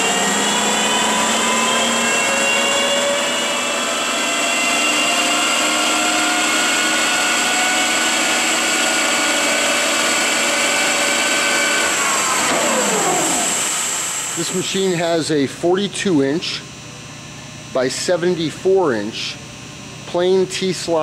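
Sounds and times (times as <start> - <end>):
boring mill spindle whine: 0.0 - 21.0.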